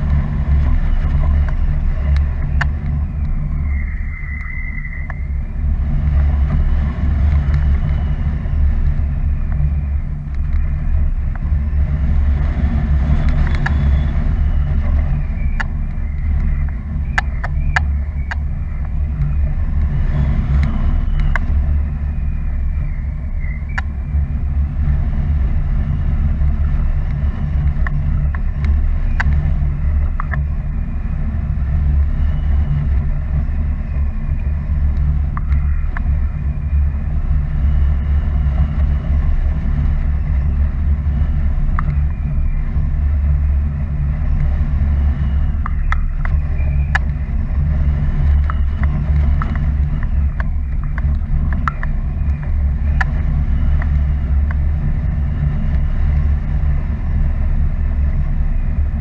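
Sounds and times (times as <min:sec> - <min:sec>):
faint clicks: 0:00.0 - 0:05.3, 0:06.2 - 0:21.7, 0:23.4 - 0:24.0, 0:27.0 - 0:30.7, 0:34.4 - 0:36.6, 0:41.4 - 0:43.0, 0:44.2 - 0:58.9
wind rumbling on microphone: 0:00.0 - 0:59.0.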